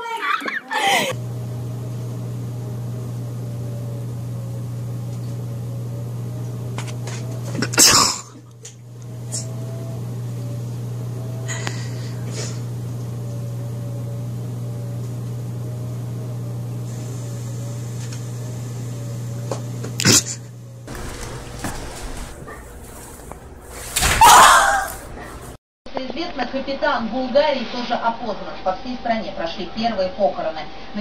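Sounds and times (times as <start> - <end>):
low machine hum: 0.8 - 25.6.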